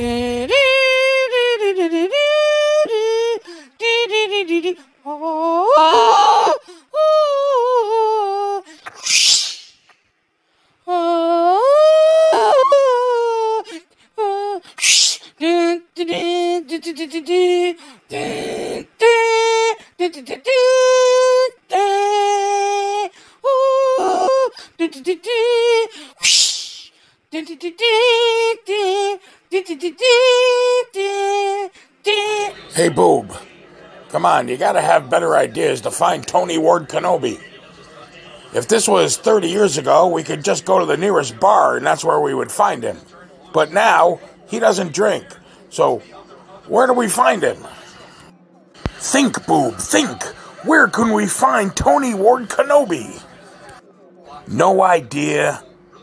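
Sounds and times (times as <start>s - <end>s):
person singing wordless tune: 0.0s - 8.8s, 10.8s - 33.5s.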